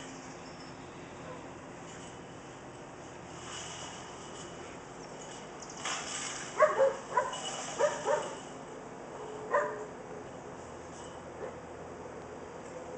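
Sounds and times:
puppy barking: 0:01.2 - 0:01.5, 0:06.6 - 0:08.4, 0:09.5 - 0:09.9.

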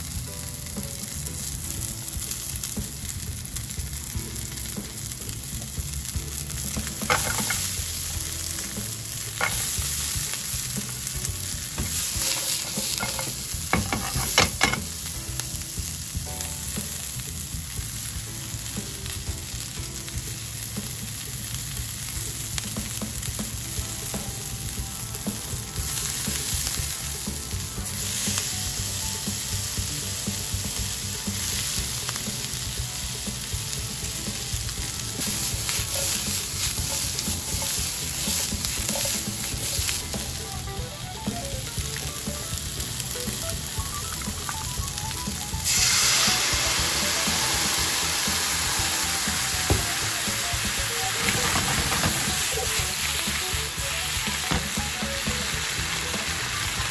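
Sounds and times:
food sizzling in frying pan: 0:00.0 - 0:56.9
utensil scraping and knocking pan: 0:07.0 - 0:07.7, 0:11.8 - 0:14.9.

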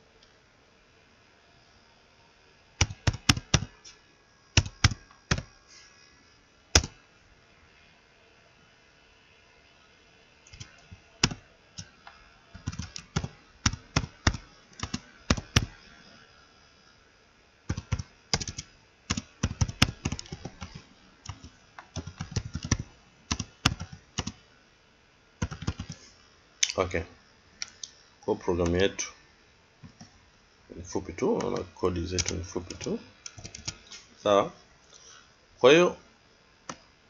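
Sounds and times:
computer keyboard typing: 0:02.8 - 0:03.7, 0:04.6 - 0:05.5, 0:06.8 - 0:07.0, 0:10.5 - 0:15.8, 0:17.7 - 0:24.4, 0:25.4 - 0:26.0, 0:31.4 - 0:33.9.

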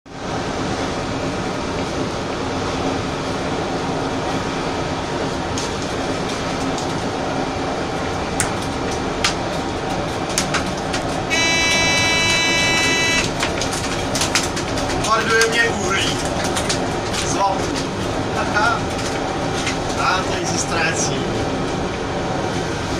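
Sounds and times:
train rumbling on rails: 0:00.1 - 0:22.9
rail squeaks and clicks: 0:10.6 - 0:14.9
steady high multi-pitch tone: 0:11.3 - 0:13.3.

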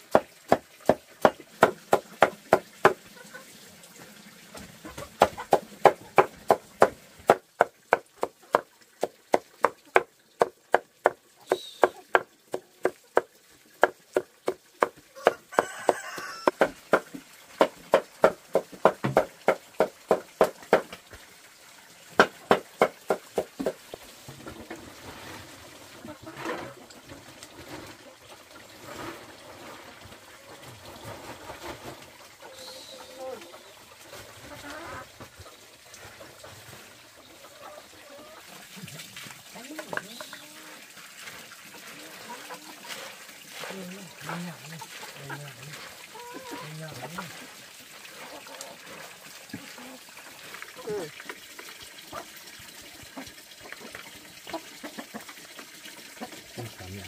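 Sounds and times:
machete chopping on wooden board: 0:00.1 - 0:03.0, 0:11.8 - 0:20.9, 0:22.2 - 0:23.8.

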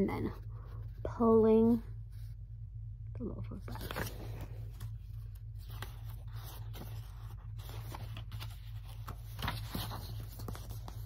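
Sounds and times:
low steady hum: 0:00.0 - 0:11.0
book pages rustling: 0:03.6 - 0:11.0.

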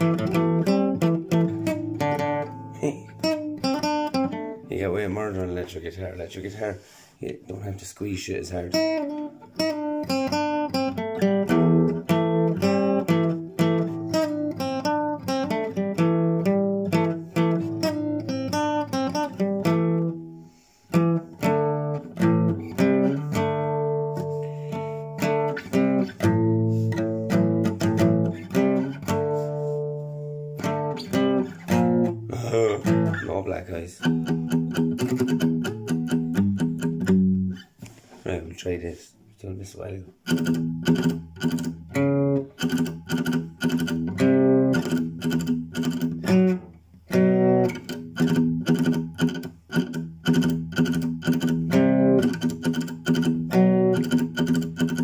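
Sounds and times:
classical guitar strummed chords: 0:00.0 - 0:05.7, 0:08.6 - 0:37.9, 0:40.1 - 0:55.0.

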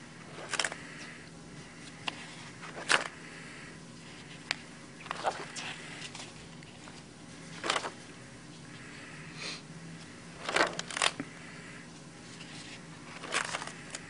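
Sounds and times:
low steady hum: 0:00.0 - 0:14.0
paper pages turning: 0:00.3 - 0:03.2, 0:04.0 - 0:08.1, 0:10.0 - 0:11.3, 0:12.2 - 0:14.0.

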